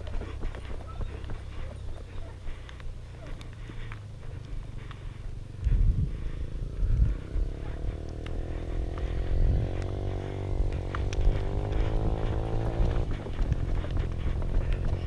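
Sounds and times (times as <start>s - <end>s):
low rumble: 0.0s - 15.0s
heavy bumps: 2.4s - 15.0s
vehicle engine rising in pitch: 5.4s - 15.0s.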